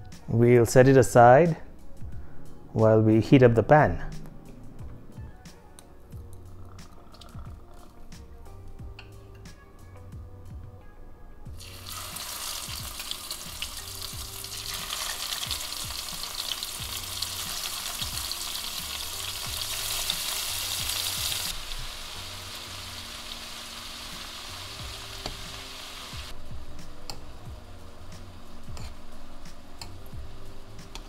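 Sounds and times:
shrimp sizzling in oil: 11.6s - 31.0s.

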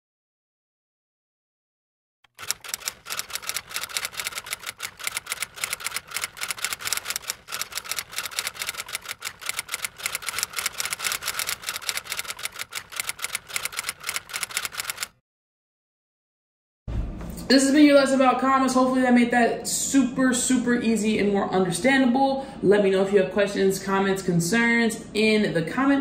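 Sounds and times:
keyboard keys clacking: 2.3s - 15.1s.

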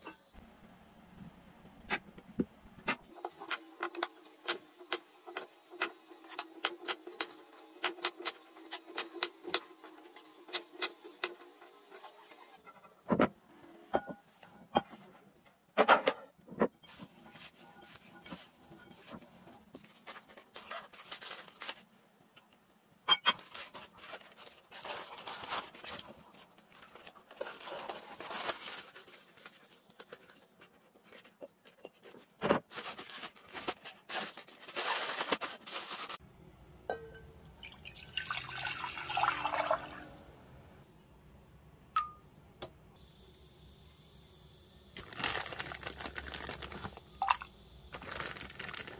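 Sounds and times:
water pouring into pot: 37.5s - 40.5s, 45.0s - 48.9s
plastic bag crinkling: 45.0s - 48.9s.

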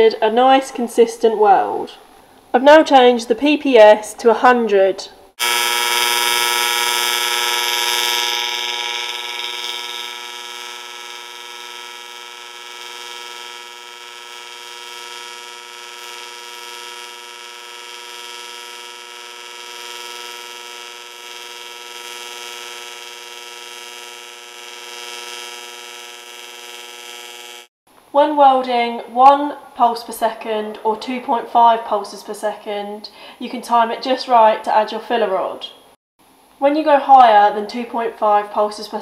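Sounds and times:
welding arc buzzing: 5.3s - 27.7s.

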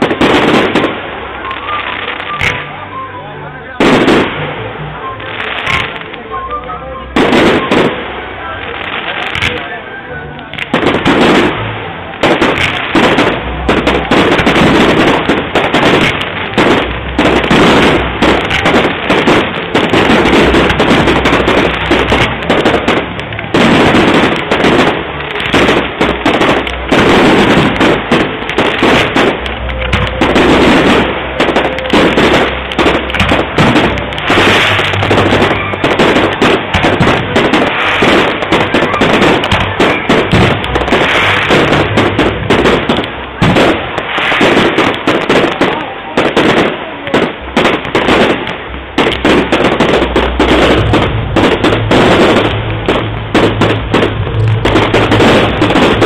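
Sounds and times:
fireworks crackle: 0.0s - 56.0s
fireworks shell bursts: 12.2s - 45.8s.

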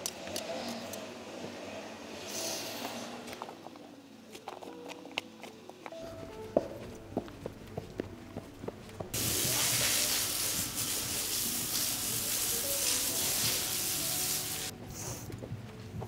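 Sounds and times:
light hoof steps: 4.4s - 9.2s, 14.8s - 16.0s
hose spray hissing: 9.2s - 14.7s.

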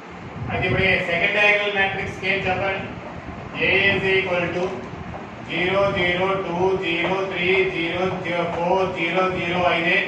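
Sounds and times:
man speaking in a drawn-out voice: 0.5s - 4.9s, 5.5s - 10.0s.

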